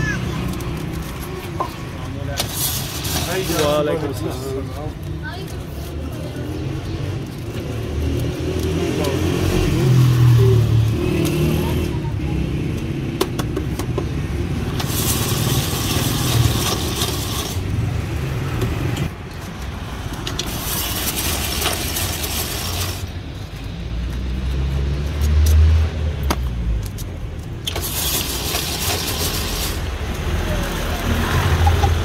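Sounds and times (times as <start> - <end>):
road traffic rumble: 0.0 - 32.0
ice shaver scraping ice: 2.4 - 4.6, 14.7 - 17.8, 20.4 - 23.1, 27.7 - 30.4.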